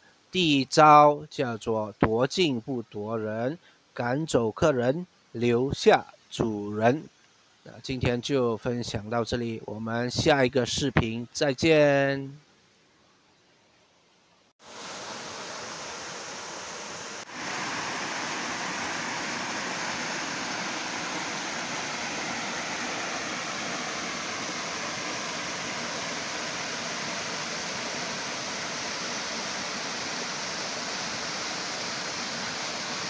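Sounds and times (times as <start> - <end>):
stream water rushing over boulders: 14.6 - 33.0.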